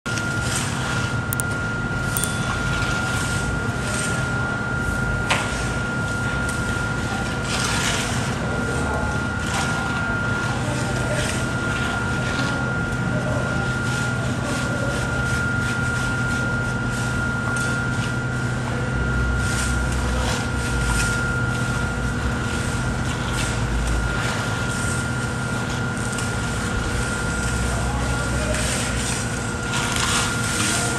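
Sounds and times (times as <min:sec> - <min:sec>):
machinery hum with whine: 0:00.1 - 0:30.9
trowels scraping wet concrete: 0:28.2 - 0:30.9.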